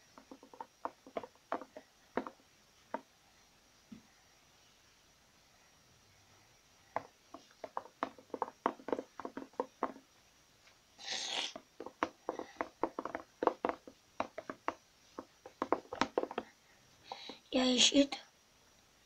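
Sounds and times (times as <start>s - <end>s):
spoon clacking against plastic bowl: 11.4s - 16.5s.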